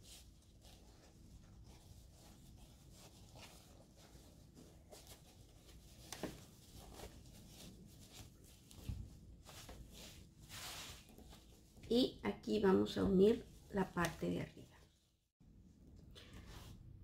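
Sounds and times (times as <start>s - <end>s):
fabric rustling: 0.0s - 12.0s.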